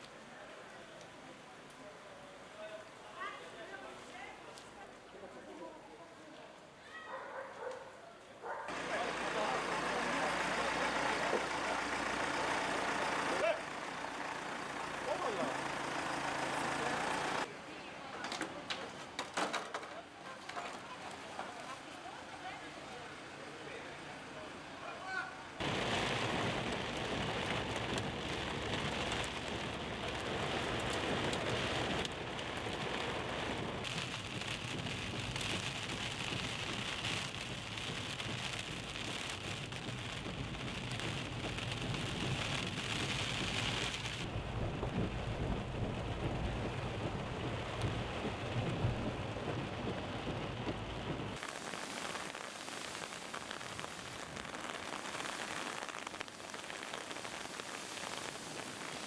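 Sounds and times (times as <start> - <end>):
hiss of rain: 0.0 - 7.0, 8.2 - 17.8, 20.2 - 59.0
rain on a car windscreen: 8.7 - 17.5, 25.0 - 59.0
steady low rumble: 25.6 - 51.4.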